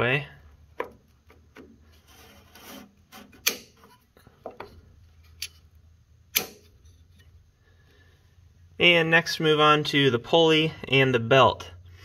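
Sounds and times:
plastic cap rubbing: 1.3s - 4.1s
sharp clicks of clamps: 3.2s - 3.9s, 6.3s - 6.8s.

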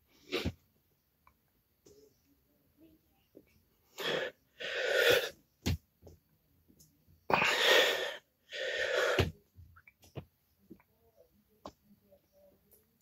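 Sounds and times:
man breathing hard: 7.4s - 9.3s.

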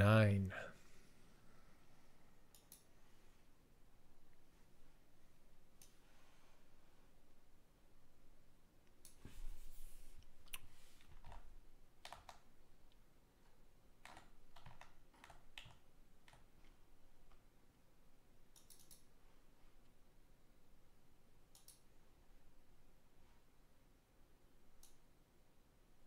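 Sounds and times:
faint irregular clicks: 2.4s - 3.0s, 5.7s - 6.0s, 10.2s - 13.0s, 14.0s - 17.5s, 18.5s - 19.2s, 21.5s - 22.0s, 24.8s - 25.1s.

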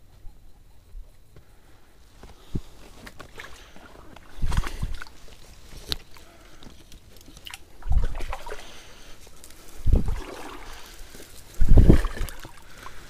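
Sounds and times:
boots sloshing through water: 3.0s - 6.4s, 7.2s - 8.9s, 9.8s - 13.0s
trickle of flowing water: 3.2s - 13.0s.

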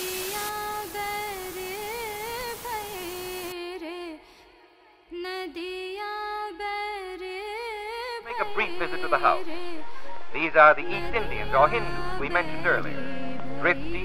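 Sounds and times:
hiss: 0.0s - 3.5s
woman singing slow melody: 0.0s - 14.0s.

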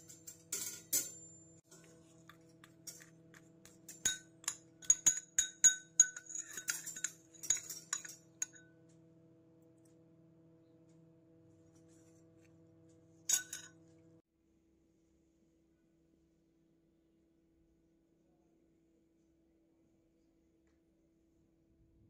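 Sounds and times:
metal fork clinking on bowl: 0.0s - 8.7s, 13.3s - 13.8s.

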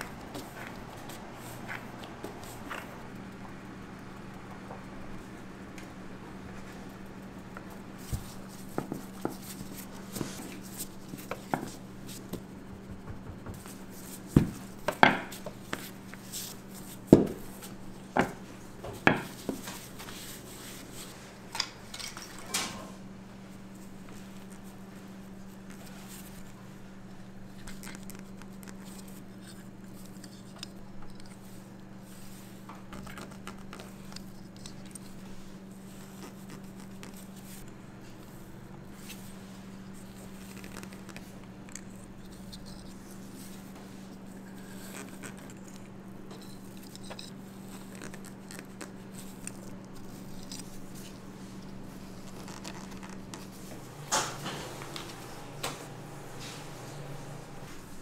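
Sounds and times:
food preparation tapping and clicking: 11.4s - 15.8s.

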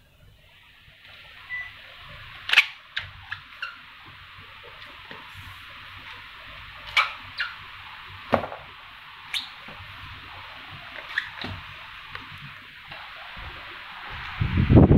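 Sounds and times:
steady hiss: 0.0s - 14.9s
sandals slapping on tiled floor: 10.8s - 13.1s.

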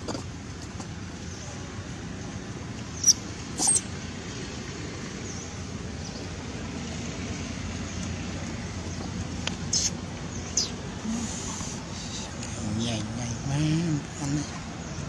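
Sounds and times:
low outdoor background rumble: 0.0s - 15.0s
baby monkey squeaks: 3.0s - 3.9s.

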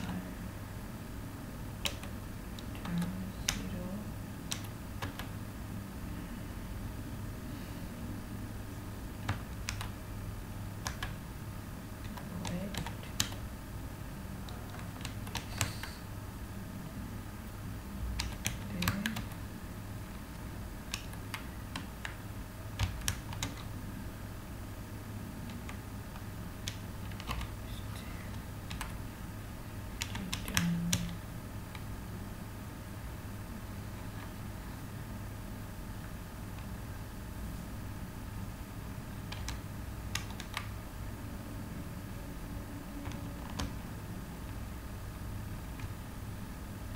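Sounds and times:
steady low hum: 0.0s - 46.9s
typing on computer keyboard: 1.8s - 3.7s, 4.5s - 5.3s, 9.2s - 10.0s, 10.8s - 11.2s, 12.0s - 13.4s, 14.4s - 15.9s, 18.2s - 19.4s, 20.8s - 22.2s, 22.8s - 23.7s, 25.5s - 27.6s, 28.3s - 29.0s, 30.0s - 31.8s, 39.3s - 40.8s, 43.0s - 43.8s.

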